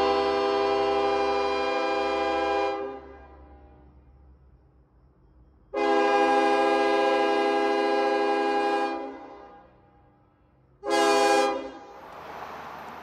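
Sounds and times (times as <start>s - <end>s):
locomotive air horn blasts: 0.0s - 3.8s, 5.7s - 9.8s, 10.8s - 12.0s.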